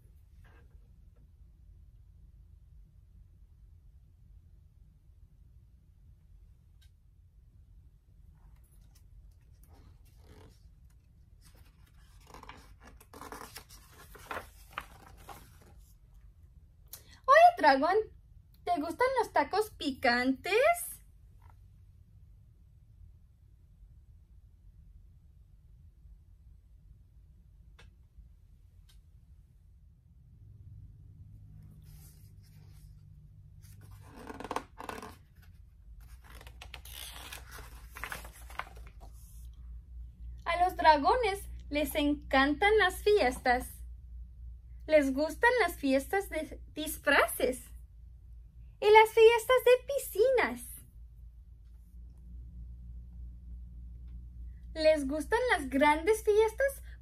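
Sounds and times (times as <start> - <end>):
book page turning: 8.6 - 16.0, 33.6 - 39.6.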